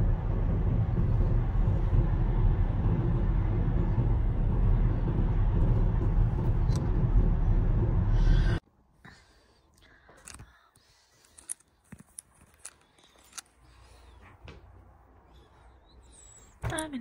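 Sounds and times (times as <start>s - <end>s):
car engine and road noise: 0.0s - 8.6s.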